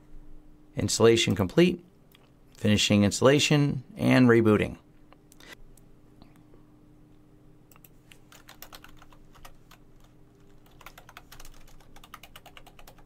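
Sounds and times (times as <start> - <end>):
computer keyboard typing: 7.7 - 13.0.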